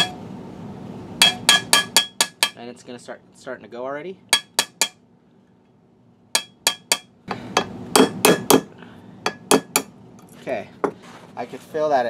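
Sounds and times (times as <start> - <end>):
hammer tapping metal punch: 0.0 - 0.2, 1.2 - 2.6, 4.3 - 5.0, 6.4 - 8.7, 9.3 - 9.9.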